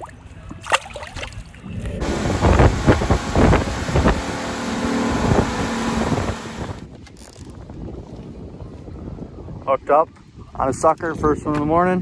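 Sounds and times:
water splash: 0.6 - 6.9
wind buffeting microphone: 1.5 - 12.0
rushing water: 2.0 - 6.8
boat engine running fast: 2.0 - 6.9.

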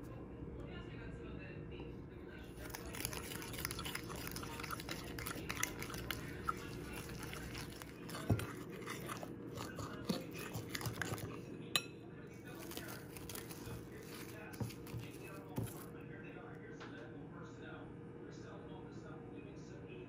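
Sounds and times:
fork scraping glass bowl: 2.6 - 11.9, 12.5 - 15.9.

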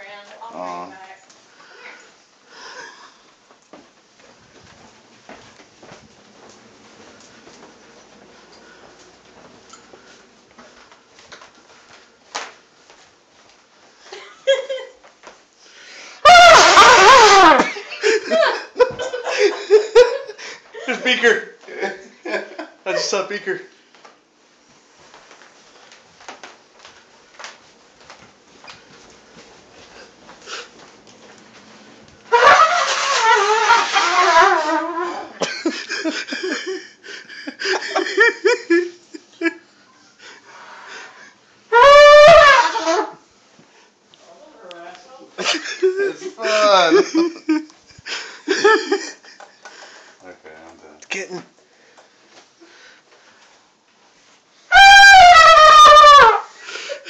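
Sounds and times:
loud trumpet blast: 16.2 - 17.7, 32.3 - 35.3, 41.7 - 43.2, 54.7 - 56.5
people laughing: 16.3 - 23.2, 35.4 - 39.6, 45.4 - 49.9.

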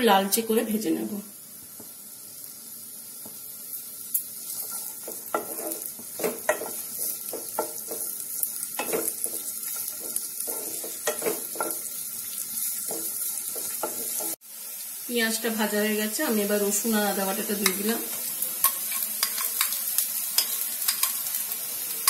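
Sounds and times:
onions sizzling in oil: 0.0 - 22.0
wooden spatula scraping a pan: 4.4 - 8.2, 8.8 - 11.9.

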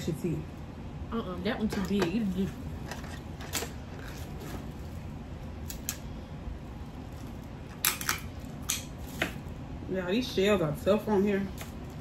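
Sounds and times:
crab shells cracking: 7.7 - 8.9.

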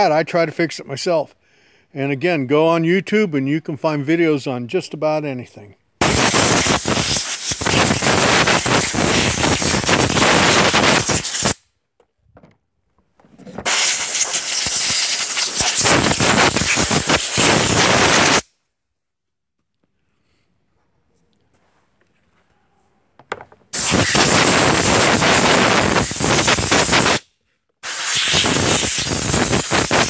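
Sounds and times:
air blow gun hissing: 6.0 - 11.6, 13.6 - 18.5, 23.7 - 30.0.

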